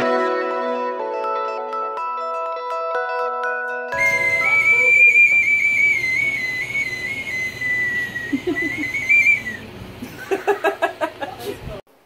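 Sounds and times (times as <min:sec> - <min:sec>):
bird whistle warbling note: 0:03.9 - 0:09.7.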